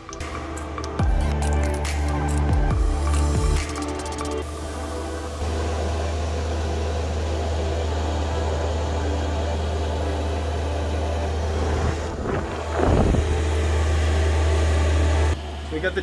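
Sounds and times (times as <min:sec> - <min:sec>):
air heater humming and whirring: 0:04.4 - 0:16.0.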